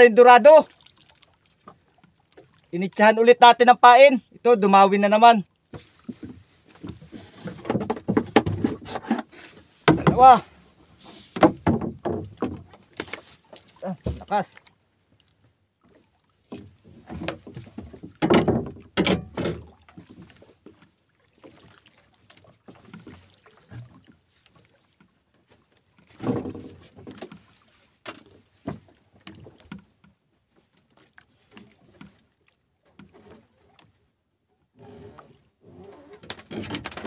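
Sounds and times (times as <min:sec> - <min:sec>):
knocks on wooden boat: 0:05.7 - 0:09.0, 0:09.8 - 0:10.4, 0:11.4 - 0:13.1, 0:16.6 - 0:19.7.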